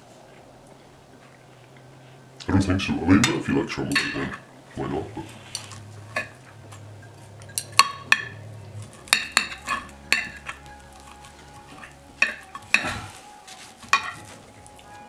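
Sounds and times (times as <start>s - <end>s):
cutlery clinking and scraping plate: 3.2s - 4.4s, 5.4s - 14.9s.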